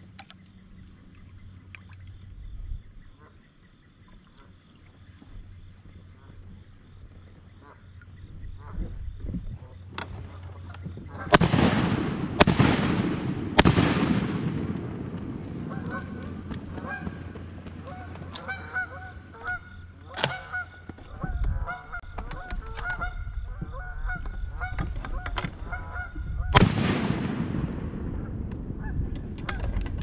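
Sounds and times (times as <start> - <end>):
geese honking: 7.6 - 8.9, 15.6 - 26.6
shotgun blast: 11.3 - 16.3, 26.5 - 28.3.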